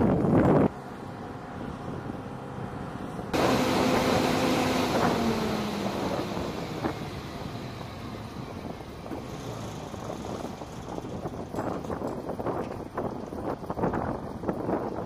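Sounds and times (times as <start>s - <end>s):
machinery rushing and humming: 1.2s - 12.0s.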